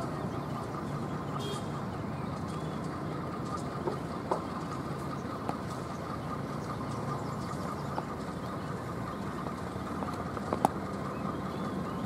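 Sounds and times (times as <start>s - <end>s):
distant engines rumbling: 0.0s - 12.0s.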